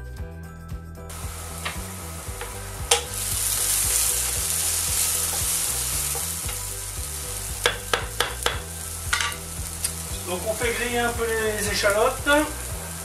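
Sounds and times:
shallots sizzling in a pan: 0:01.1 - 0:13.0
wooden spatula stirring: 0:01.2 - 0:11.1.

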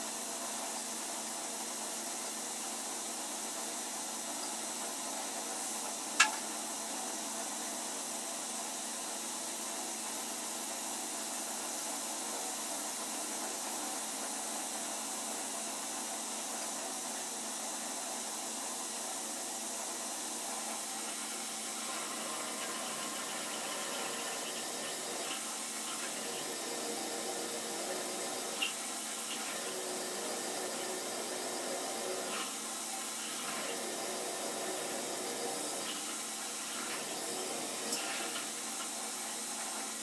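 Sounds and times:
milling machine running: 0:18.0 - 0:40.0.

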